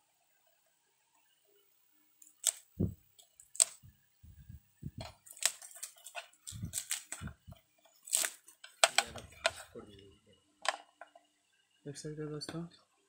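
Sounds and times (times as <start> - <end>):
plastic wrap crinkling and tearing: 2.2 - 3.8, 5.0 - 9.7.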